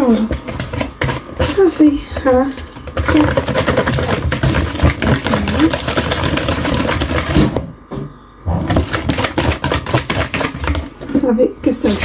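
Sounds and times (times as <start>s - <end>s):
whisk clattering in a bowl: 2.5s - 7.4s, 8.7s - 11.1s.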